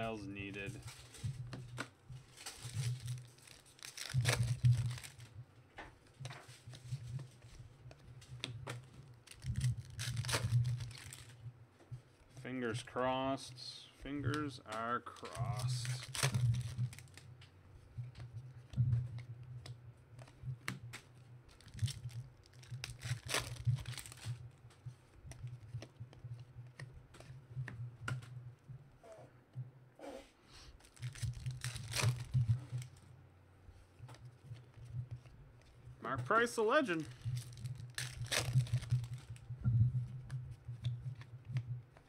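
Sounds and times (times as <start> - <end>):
cards rustling and clicking: 0.0 - 12.9, 13.8 - 28.4, 30.6 - 33.1, 33.7 - 42.0
foil wrapper crinkling and tearing: 2.2 - 5.4, 8.2 - 11.4, 14.4 - 17.3, 20.9 - 24.6, 30.7 - 33.0, 36.1 - 39.5.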